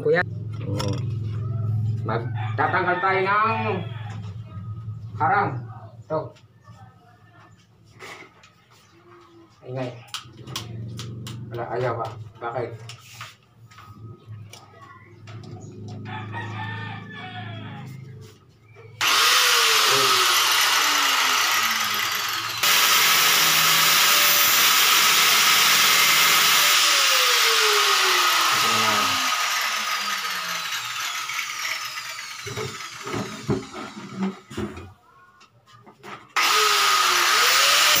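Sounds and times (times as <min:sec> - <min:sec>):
power tool grinding: 0:19.0 - 0:34.8, 0:36.4 - 0:38.0.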